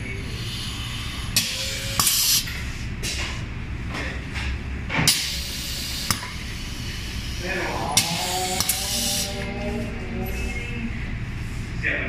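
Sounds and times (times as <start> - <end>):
low steady hum: 0.0 - 12.0
compressed air hissing: 0.2 - 2.7, 5.1 - 9.4.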